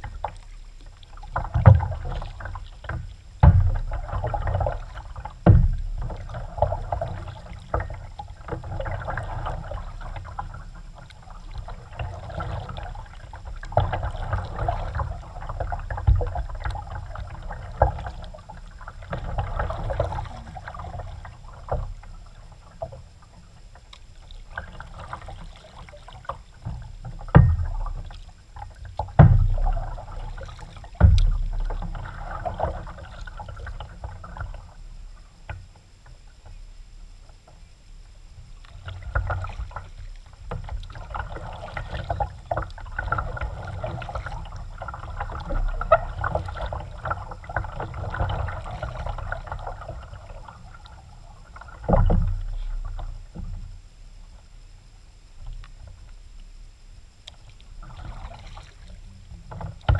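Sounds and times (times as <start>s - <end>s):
water splashing around paddle: 0.0s - 54.7s, 57.2s - 59.9s
paddle knocks: 1.3s - 9.2s, 26.7s - 33.0s, 58.0s - 59.9s.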